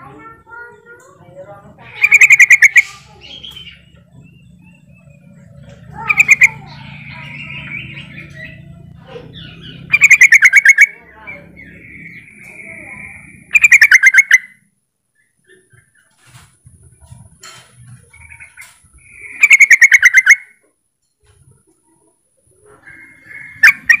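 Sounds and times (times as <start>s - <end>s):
bird chattering call: 1.8s - 14.6s, 18.0s - 20.6s, 22.7s - 24.0s.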